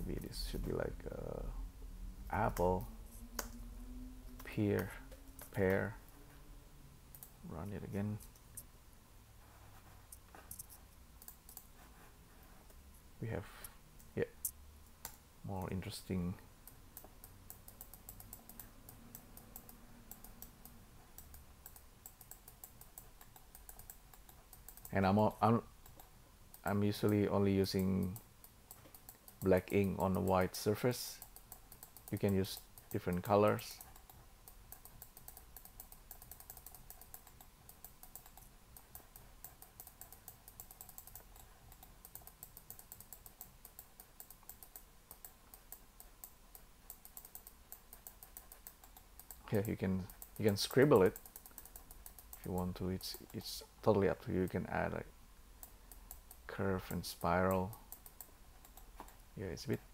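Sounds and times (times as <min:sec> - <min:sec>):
low steady hum: 0:00.0 - 0:59.9
computer mouse and keyboard clicking: 0:02.4 - 0:03.6, 0:04.2 - 0:06.0, 0:07.1 - 0:08.7, 0:09.8 - 0:11.8, 0:13.6 - 0:53.7, 0:55.6 - 0:59.8
keyboard clicking: 0:31.2 - 0:53.4.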